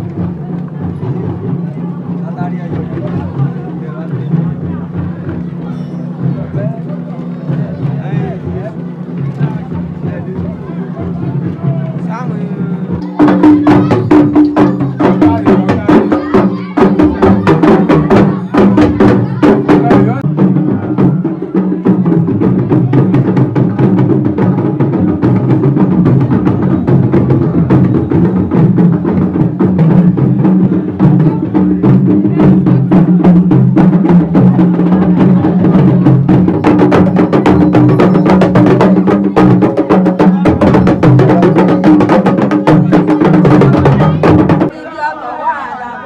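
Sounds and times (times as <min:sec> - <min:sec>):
fast drumming music: 0:00.0 - 0:44.7.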